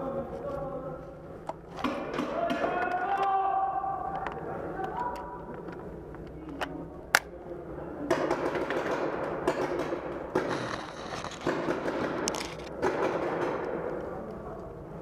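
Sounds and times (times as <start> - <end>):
paintball markers firing: 8.1 - 14.1.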